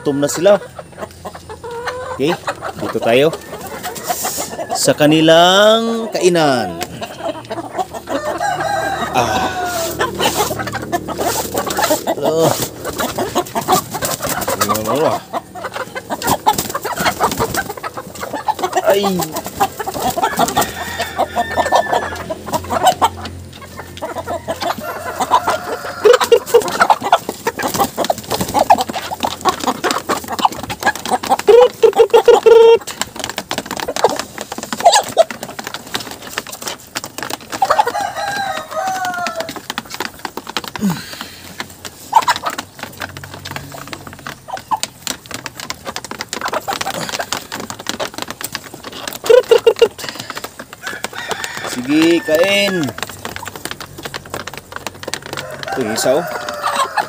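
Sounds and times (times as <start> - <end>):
chickens clucking and squawking: 0.0 - 57.0
beaks tapping on wood: 15.6 - 57.0.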